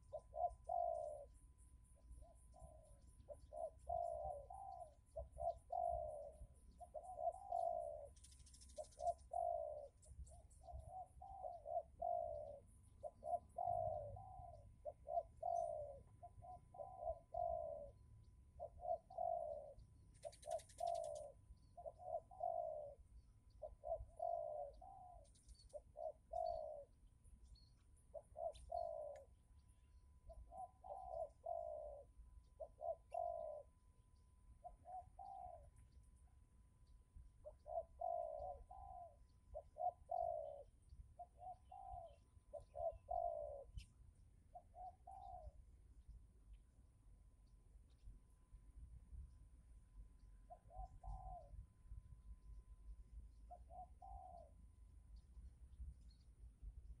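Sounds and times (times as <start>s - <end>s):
doves cooing: 0.0s - 1.4s, 2.3s - 18.0s, 18.6s - 27.1s, 28.1s - 29.4s, 30.3s - 33.7s, 34.6s - 35.9s, 37.4s - 43.8s, 44.5s - 45.6s, 50.5s - 51.6s, 53.5s - 54.6s.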